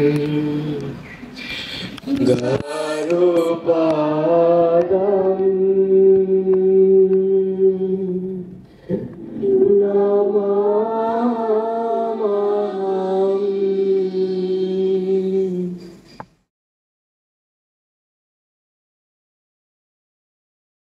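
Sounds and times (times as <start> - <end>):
voices chanting in unison: 9.0 - 15.9.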